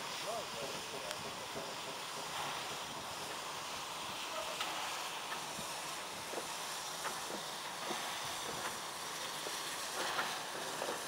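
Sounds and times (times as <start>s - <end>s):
steam locomotive hissing: 0.0s - 11.0s.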